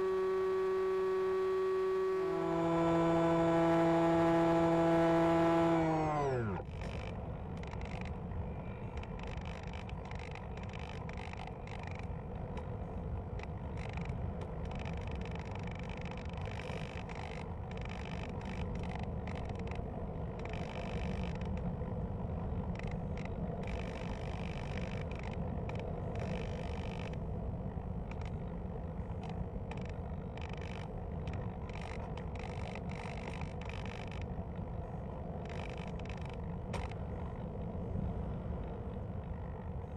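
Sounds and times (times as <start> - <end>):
electric motor whine: 0.0 - 6.7.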